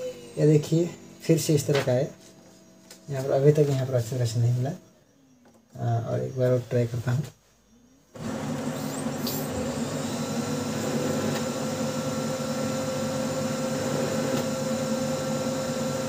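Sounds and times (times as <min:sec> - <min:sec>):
laser printer motors and fan whirring: 0:08.1 - 0:16.0.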